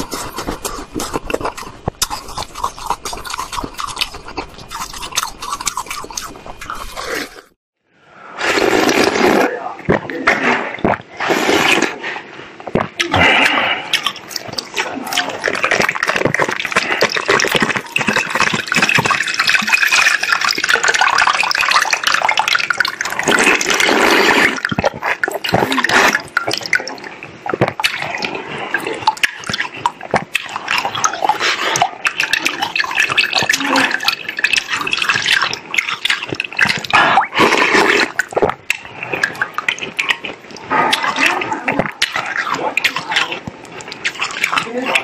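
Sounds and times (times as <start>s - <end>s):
ice being bitten: 0.0s - 7.5s, 12.6s - 45.0s
plastic bottle crinkling: 12.6s - 28.2s
water dripping: 12.7s - 45.0s.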